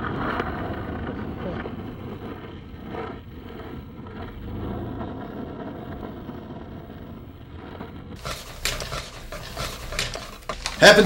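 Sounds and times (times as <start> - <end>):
wind on microphone: 0.0 - 8.2.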